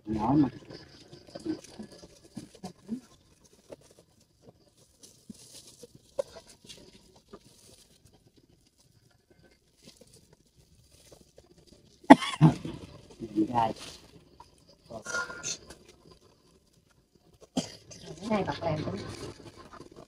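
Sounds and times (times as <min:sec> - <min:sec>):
plastic bags rustling: 0:00.6 - 0:09.0, 0:09.6 - 0:16.8.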